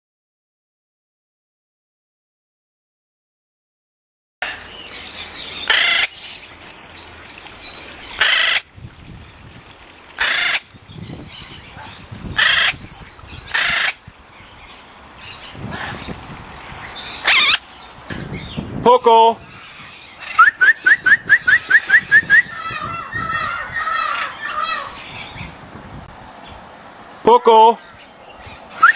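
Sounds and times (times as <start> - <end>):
parrot calling harshly: 5.6 - 6.2, 8.2 - 8.7, 10.2 - 10.6, 11.8 - 14.0, 17.1 - 17.6, 19.5 - 25.4.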